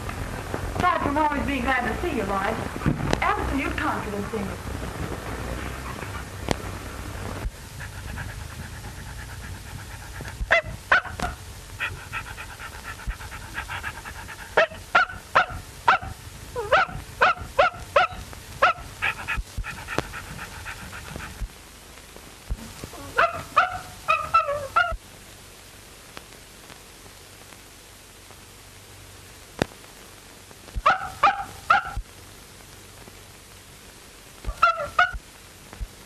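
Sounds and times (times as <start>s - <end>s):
small dog yapping: 7.5s - 21.4s, 22.9s - 25.0s, 30.8s - 32.0s, 34.4s - 35.2s
dog whining: 7.7s - 21.3s, 22.9s - 25.0s.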